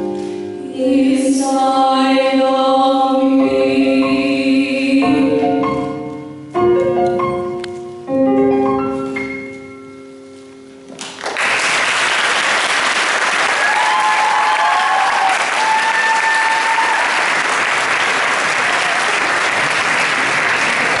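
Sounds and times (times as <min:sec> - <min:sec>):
piano notes: 0:00.0 - 0:11.2
audience clapping: 0:11.0 - 0:21.0
cheers: 0:12.8 - 0:21.0.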